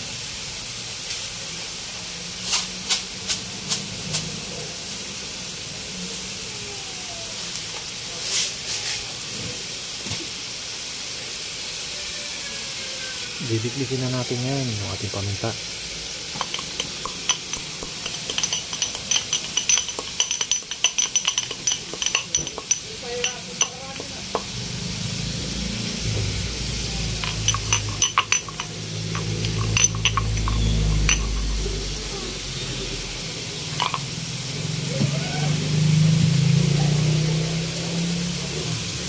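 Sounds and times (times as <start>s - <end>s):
pestle pounding in stone mortar: 16.4s - 24.7s
low steady rumble: 16.4s - 34.5s.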